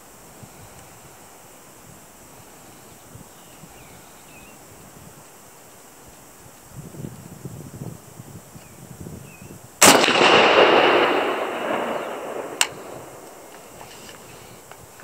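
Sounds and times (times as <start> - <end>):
rifle shot echoing: 9.8 - 13.8.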